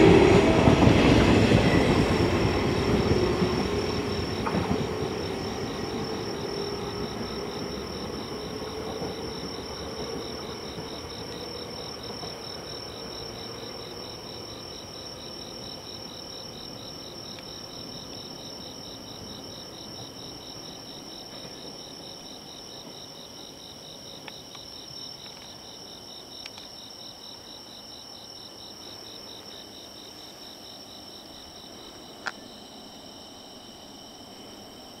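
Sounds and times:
electric train rumble: 0:00.0 - 0:26.2
insects chirping: 0:00.0 - 0:35.0.

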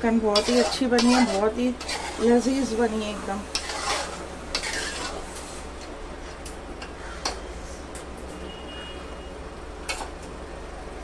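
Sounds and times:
steady low hum: 0:00.0 - 0:08.3.

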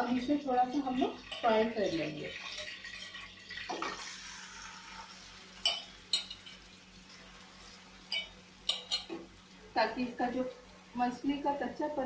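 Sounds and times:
fish sizzling in hot oil: 0:00.0 - 0:12.0
metal cookware clinks: 0:05.6 - 0:06.6, 0:08.1 - 0:09.2.

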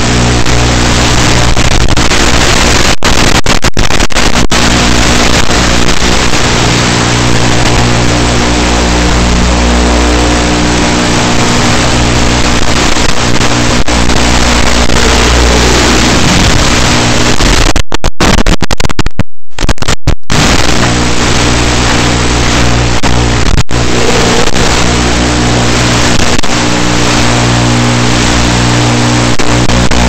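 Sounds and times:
buzzing hum and hiss: 0:00.0 - 0:30.0
sliding tone: 0:06.2 - 0:17.7, 0:20.3 - 0:28.2.

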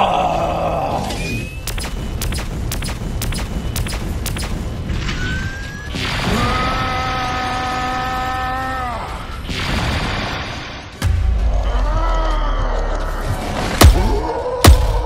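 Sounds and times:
heavy low boom: 0:11.0 - 0:13.2.

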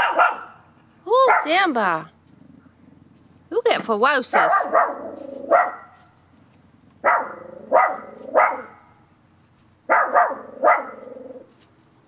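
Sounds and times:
small dog barking: 0:00.0 - 0:01.7, 0:04.3 - 0:06.1, 0:07.0 - 0:09.0, 0:09.9 - 0:11.4.

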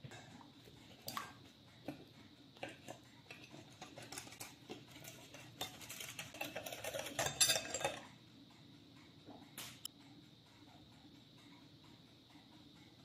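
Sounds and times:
wire whisk scraping a plate: 0:02.6 - 0:08.0.

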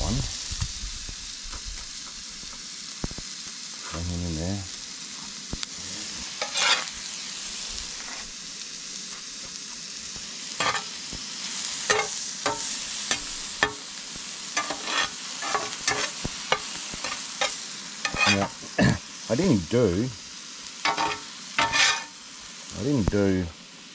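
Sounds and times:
meat sizzling in a pan: 0:00.0 - 0:23.9
utensil scraping and knocking pan: 0:06.4 - 0:06.9, 0:10.6 - 0:10.9, 0:11.9 - 0:13.8, 0:14.6 - 0:18.6, 0:20.9 - 0:22.2.

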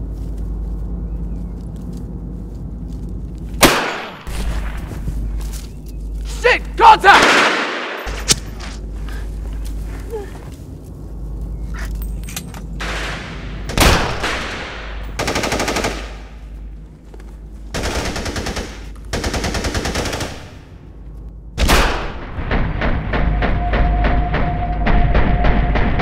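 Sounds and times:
rifle shots: 0:03.6 - 0:04.8, 0:07.1 - 0:08.3, 0:12.8 - 0:16.4, 0:21.6 - 0:22.6
rapid automatic gunfire: 0:15.2 - 0:16.3, 0:17.7 - 0:20.7.

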